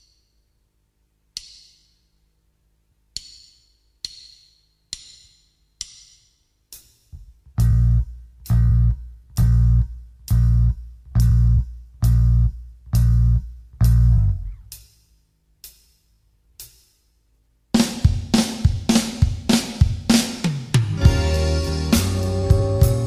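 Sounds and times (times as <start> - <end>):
slow blues band playing: 20.8 - 23.0.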